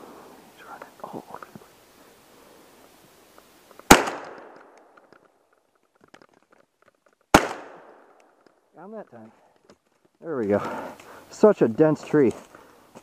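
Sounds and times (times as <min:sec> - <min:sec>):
shotgun blast echoing: 0:03.8 - 0:05.0, 0:07.3 - 0:08.2.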